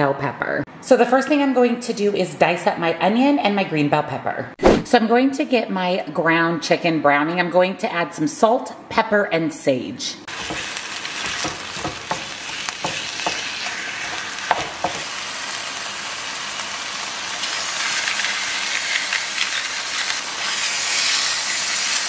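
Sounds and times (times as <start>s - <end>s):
meat sizzling in a skillet: 10.3s - 22.0s.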